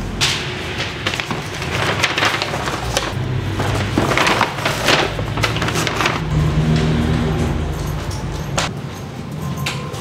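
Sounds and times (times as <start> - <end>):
paper bag crinkling: 0.8 - 6.3.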